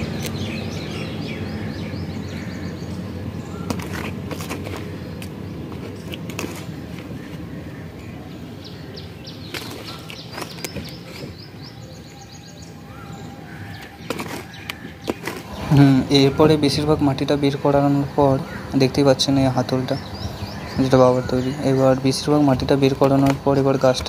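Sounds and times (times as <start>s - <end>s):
bird chirping: 0.0s - 24.0s
low outdoor background noise: 0.0s - 24.0s
hands scooping soil: 3.7s - 7.5s, 9.5s - 11.5s, 13.8s - 16.0s.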